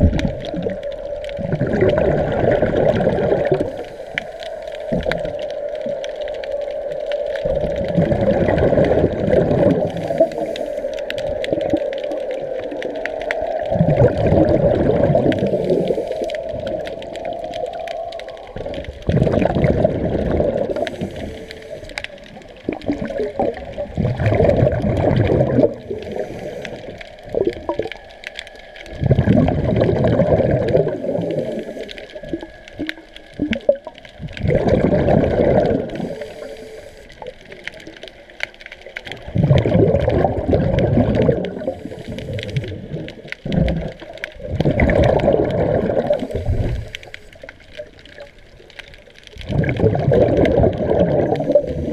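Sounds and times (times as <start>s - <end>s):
exhaled bubbles from regulator: 0.0s - 38.2s, 39.1s - 48.6s, 49.3s - 51.9s
quiet underwater bubbling: 0.0s - 51.9s.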